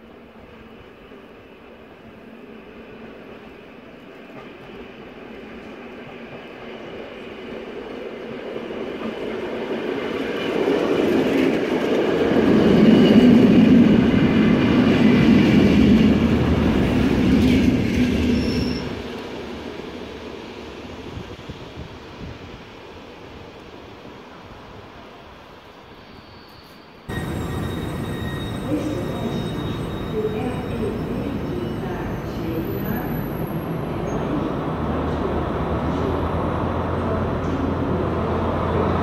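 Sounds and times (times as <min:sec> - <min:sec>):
train engine and wheels: 0:00.0 - 0:39.0
wheel squeal: 0:18.2 - 0:19.0, 0:26.2 - 0:31.8.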